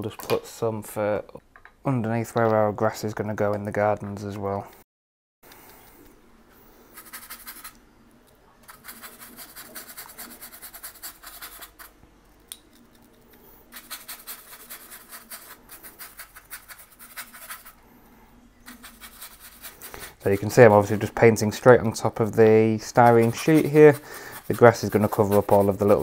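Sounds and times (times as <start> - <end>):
paintbrush scrubbing on foam: 6.9 - 7.8, 8.7 - 12.0, 13.7 - 17.8, 18.6 - 21.2, 22.8 - 26.0.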